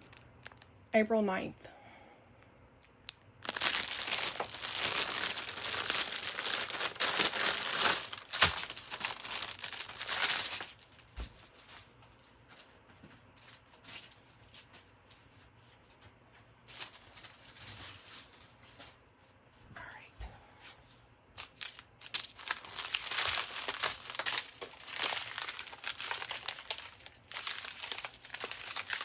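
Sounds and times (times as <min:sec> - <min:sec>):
plastic bags crinkling: 0:00.0 - 0:00.7, 0:02.8 - 0:12.0, 0:13.4 - 0:14.8, 0:16.7 - 0:18.9, 0:21.4 - 0:29.0.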